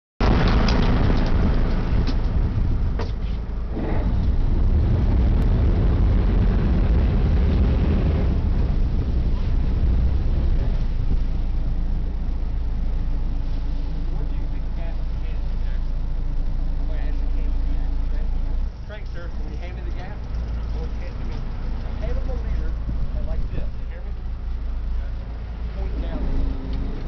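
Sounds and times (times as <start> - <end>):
water rushing past hull: 0.2 - 19.6
boat engines rumbling: 0.2 - 27.0.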